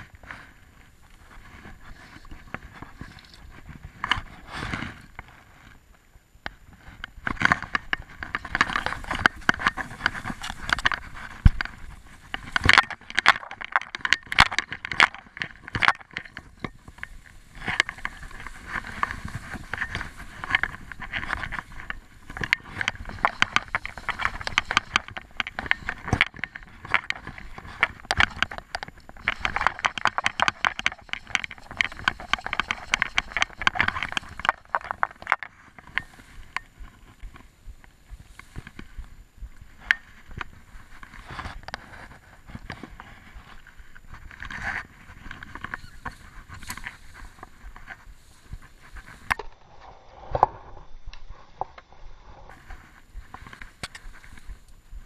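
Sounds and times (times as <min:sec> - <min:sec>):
grass rubbing against microphone: 0:00.0 - 0:55.0.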